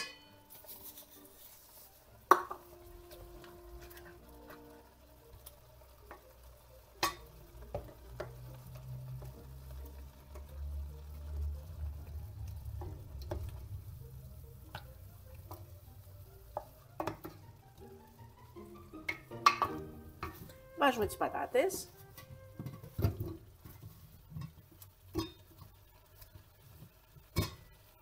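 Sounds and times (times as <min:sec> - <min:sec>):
sauce squelching and sizzling: 0:00.3 - 0:28.0
sharp clicks against a pot: 0:07.0 - 0:08.4.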